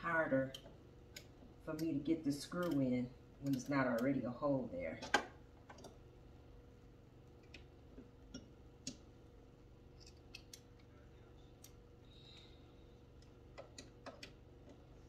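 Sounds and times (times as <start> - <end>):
small hardware clicks: 0.4 - 4.2.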